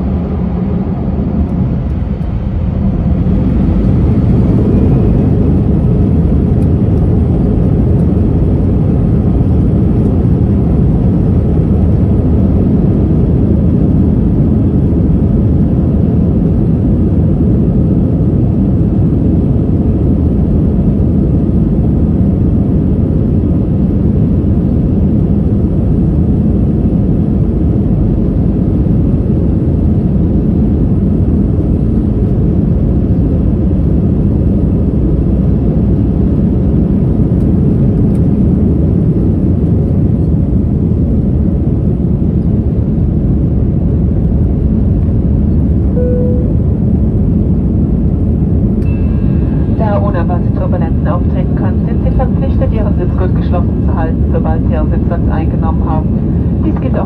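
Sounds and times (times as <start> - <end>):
runway rumble: 0.0 - 13.9
jet engines roaring: 0.0 - 57.0.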